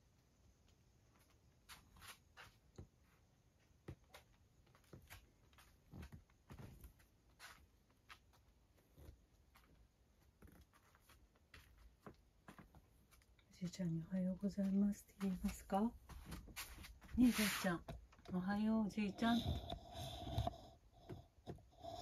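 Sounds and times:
soft taps and rustles: 0.6 - 18.7.

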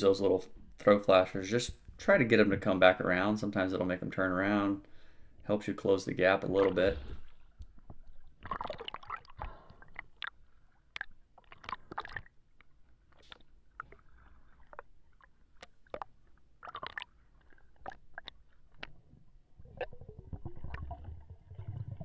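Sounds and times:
sloshing water: 6.4 - 22.0
sharp clicks and crackles underwater: 6.5 - 22.0.

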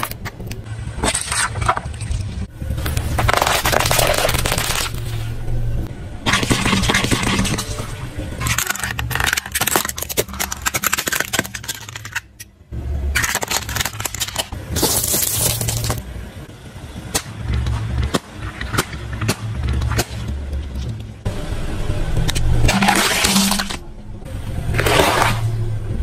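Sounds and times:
tyre crushing objects crackling: 2.8 - 5.4, 13.2 - 16.0
low engine hum: 15.7 - 26.0.

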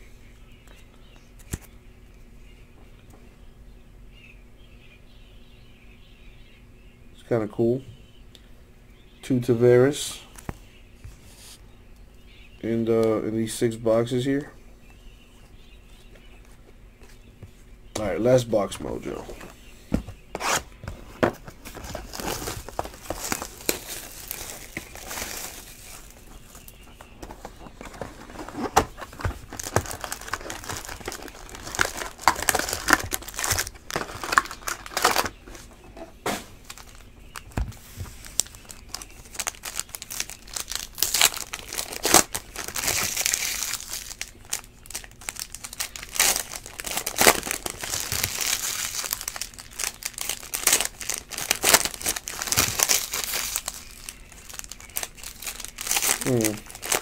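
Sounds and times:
wrappers crinkling and tearing: 21.5 - 35.7, 36.6 - 57.0.

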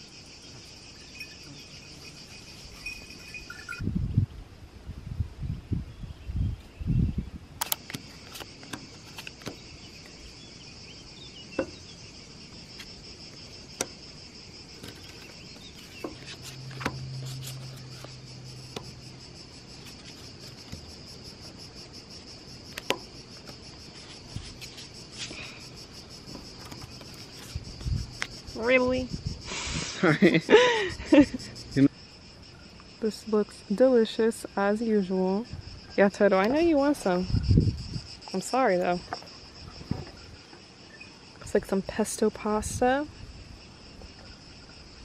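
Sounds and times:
insects chirring: 0.0 - 45.0.

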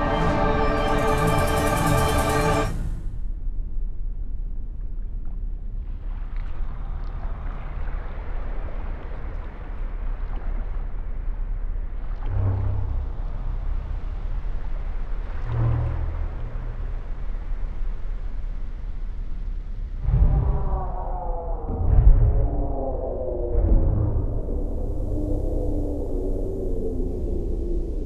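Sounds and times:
deep tones: 0.0 - 3.7, 12.0 - 28.0
muffled underwater rumbling: 3.0 - 28.0.

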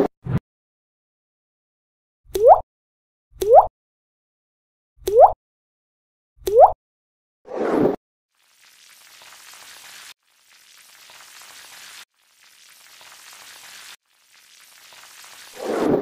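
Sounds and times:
sizzling fizz sound effect: 7.5 - 16.0.

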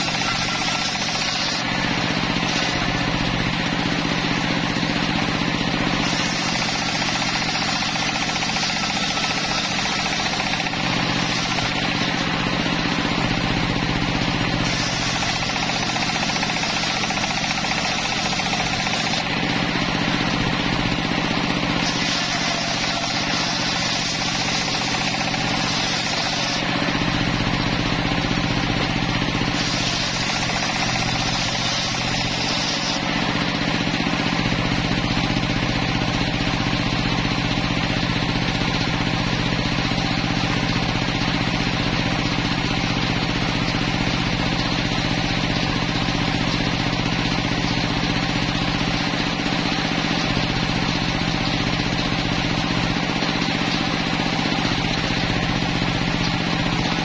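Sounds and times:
circular saw blade ripping timber: 0.0 - 12.7, 14.2 - 27.7, 28.5 - 35.2
low drone of saw drive: 0.0 - 57.0.

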